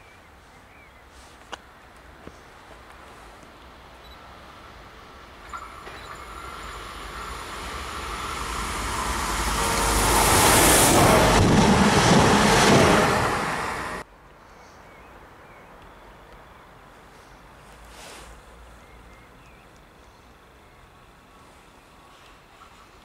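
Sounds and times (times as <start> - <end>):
train passing: 3.8 - 14.1.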